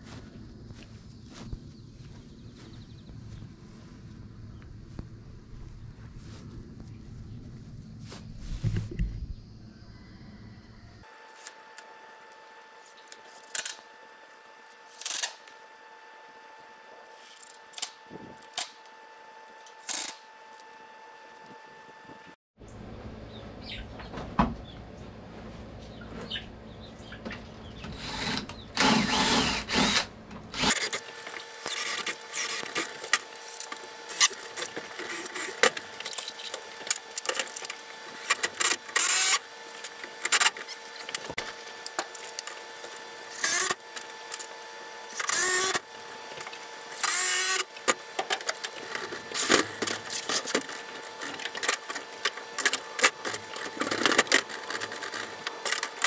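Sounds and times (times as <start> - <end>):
cordless drill driving screws: 27.9 - 56.0.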